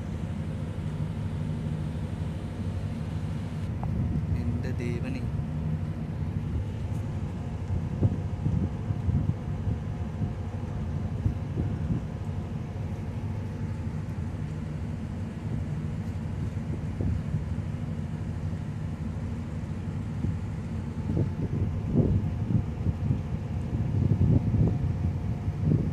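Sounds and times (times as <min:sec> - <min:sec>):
low engine rumble: 0:00.0 - 0:25.9
wind buffeting microphone: 0:03.7 - 0:05.0, 0:06.5 - 0:12.6, 0:20.2 - 0:25.9.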